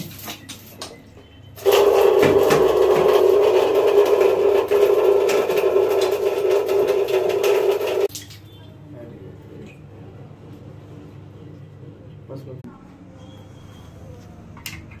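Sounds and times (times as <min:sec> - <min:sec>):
water draining and splashing: 0:01.6 - 0:10.2.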